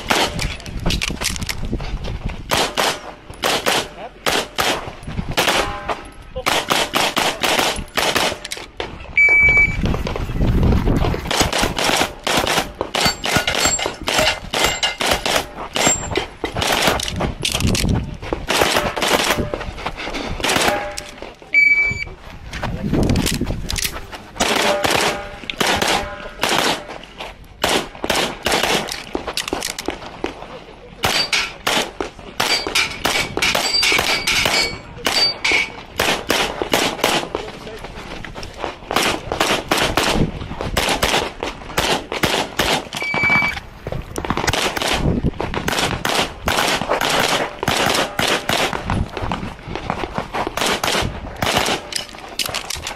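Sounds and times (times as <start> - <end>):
rapid pistol shots: 2.5 - 5.8, 6.4 - 8.5, 11.3 - 17.2, 18.5 - 19.5, 24.4 - 26.9, 27.6 - 29.1, 31.0 - 35.3, 36.0 - 37.4, 40.8 - 43.0, 44.3 - 48.9, 50.6 - 52.0
steel plates ringing: 13.0 - 15.0, 32.4 - 35.8
brief ringing tone: 43.0 - 43.6.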